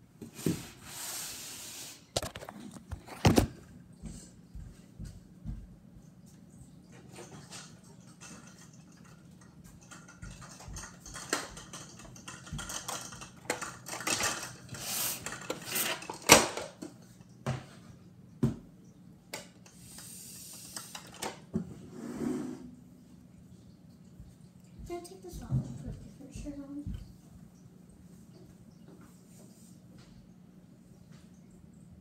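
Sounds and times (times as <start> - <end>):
small objects clicking and clattering: 8.1 - 16.7.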